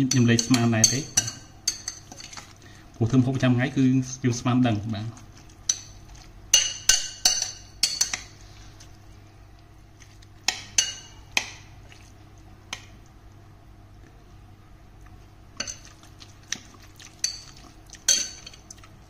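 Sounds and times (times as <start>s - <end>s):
metal spoon clinking against bowl: 0.0s - 2.3s.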